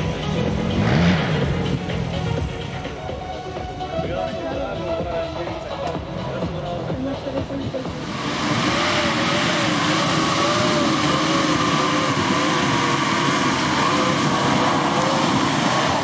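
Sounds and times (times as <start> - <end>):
engine revving under load: 0.0 - 2.8, 7.8 - 16.0.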